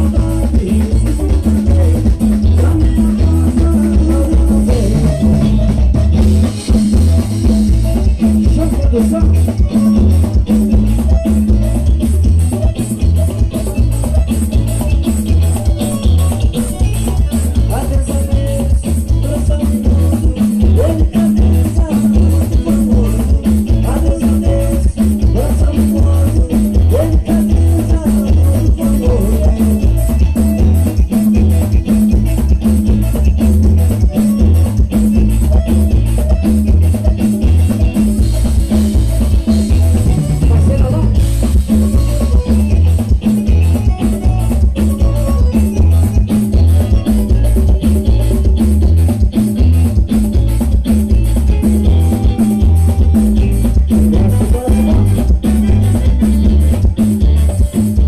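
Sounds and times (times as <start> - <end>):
man singing into a microphone: 0.0 - 6.0, 7.9 - 10.2, 16.5 - 31.5, 40.0 - 42.9, 53.8 - 56.4
heavy bass line: 0.0 - 58.0
live band playing dance music: 0.0 - 58.0.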